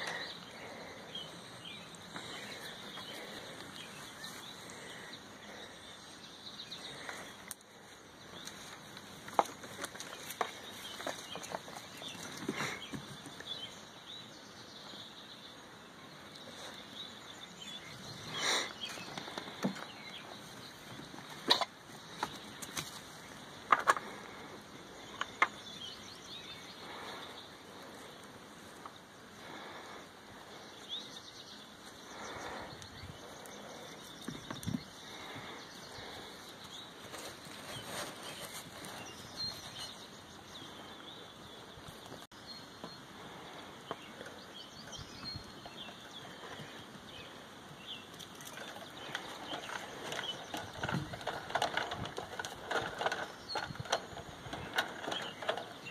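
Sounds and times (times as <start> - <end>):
small birds chirping: 0.0 - 55.9
goats clicking and knocking: 8.3 - 13.7, 18.3 - 25.8, 32.2 - 40.0, 48.0 - 55.9.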